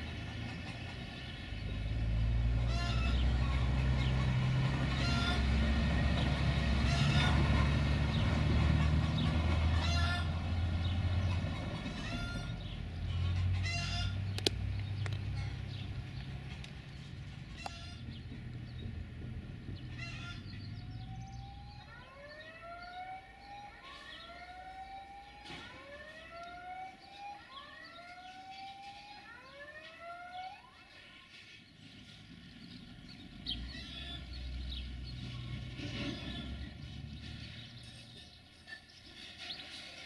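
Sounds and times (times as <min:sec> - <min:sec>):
rising siren-like wailing tones: 0:20.8 - 0:31.1.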